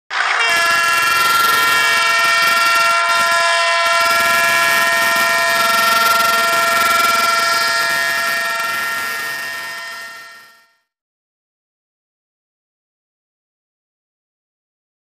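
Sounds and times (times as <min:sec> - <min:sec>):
locomotive air horn blast: 0:00.1 - 0:10.8.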